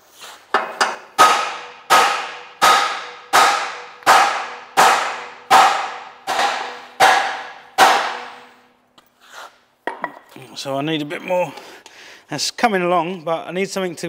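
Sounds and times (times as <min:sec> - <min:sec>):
hammer clanging on steel: 0:00.6 - 0:08.7.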